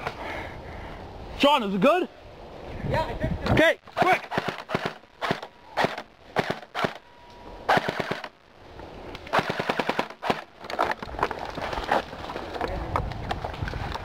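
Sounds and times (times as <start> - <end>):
airsoft rifle full-auto bursts: 4.1 - 7.0, 7.7 - 8.4, 9.3 - 10.5.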